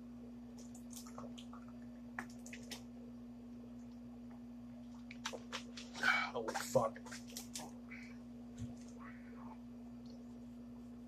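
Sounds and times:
steady hum: 0:00.0 - 0:11.0
man gulping and swallowing: 0:00.6 - 0:02.9.

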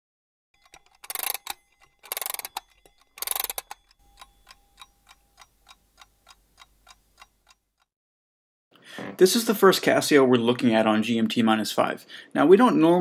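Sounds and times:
rapid clicking bursts: 0:00.6 - 0:04.0
clock ticking: 0:00.6 - 0:07.9.

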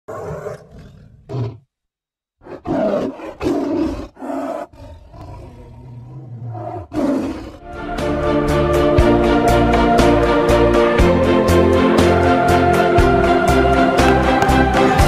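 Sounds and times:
tiger roaring: 0:00.1 - 0:01.7, 0:02.4 - 0:07.6
organ and piano music: 0:07.7 - 0:15.0.

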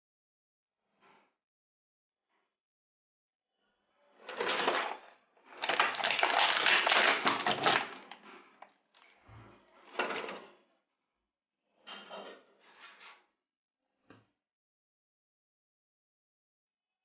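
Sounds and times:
plastic packaging crinkling: 0:04.4 - 0:08.2.

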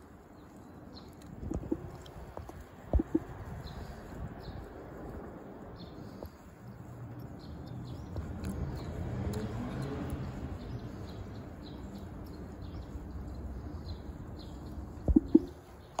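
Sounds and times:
high bird chirps: 0:01.5 - 0:02.0, 0:03.0 - 0:03.3, 0:14.5 - 0:16.0.

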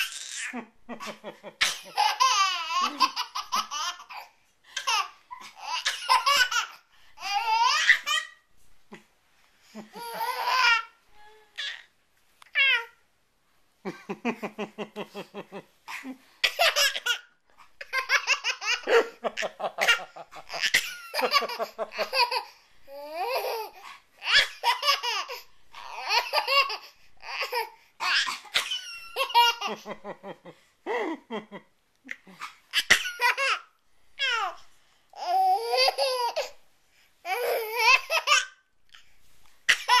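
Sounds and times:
toddler laughing: 0:00.0 - 0:08.4, 0:09.8 - 0:11.0, 0:16.4 - 0:29.9.

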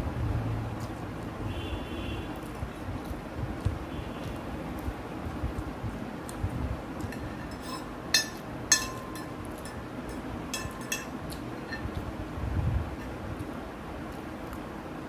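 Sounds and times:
fork clinking on ceramic plate: 0:07.1 - 0:11.9.

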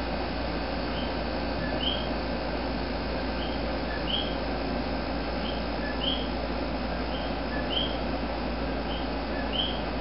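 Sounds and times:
steady hiss and low hum: 0:00.0 - 0:10.0
small animal chirping: 0:00.9 - 0:02.2, 0:03.4 - 0:04.4, 0:05.4 - 0:08.0, 0:08.8 - 0:09.9.

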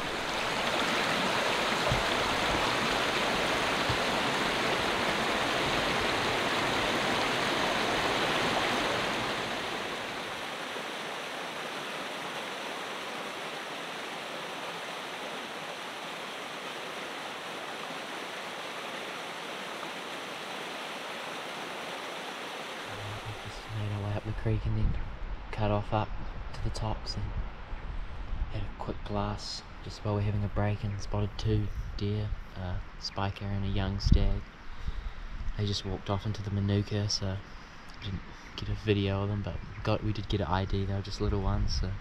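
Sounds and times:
creek water rushing over stones: 0:00.0 - 0:24.0.

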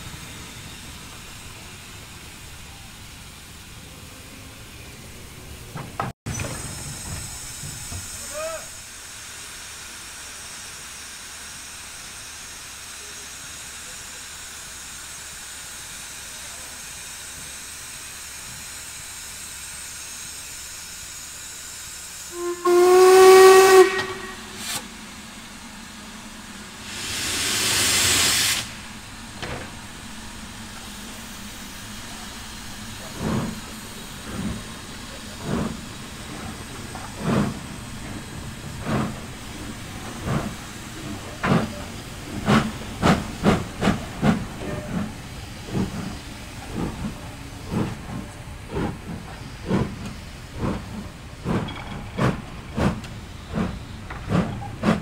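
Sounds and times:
hiss of escaping steam: 0:00.0 - 0:05.6, 0:06.3 - 0:55.0
loud rush of steam: 0:00.0 - 0:55.0
steam locomotive exhaust chuffs: 0:00.0 - 0:55.0
steam whistle blast: 0:22.3 - 0:24.8.

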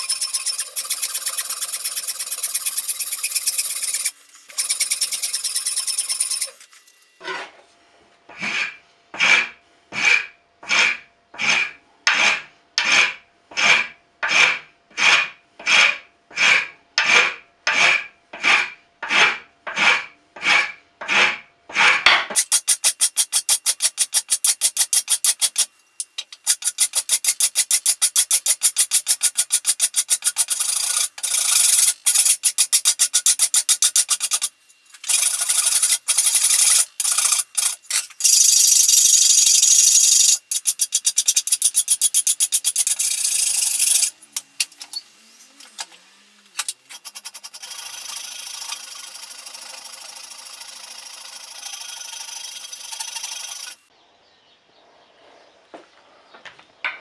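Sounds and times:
wood rasp scraping wood: 0:08.3 - 0:25.7, 0:26.4 - 0:44.1.

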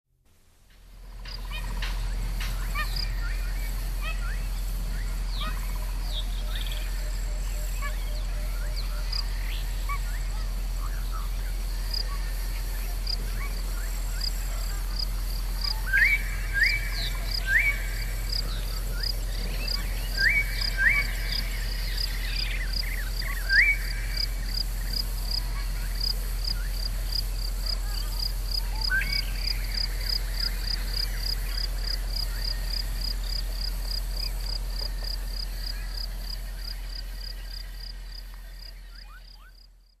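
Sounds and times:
steady low hum: 0:00.2 - 0:40.0
insect chirping: 0:00.7 - 0:40.0.

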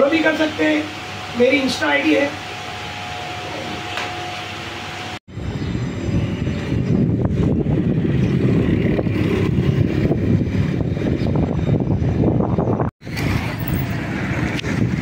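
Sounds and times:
low rumble of road traffic: 0:00.0 - 0:15.0
wind buffeting microphone: 0:05.3 - 0:15.0.

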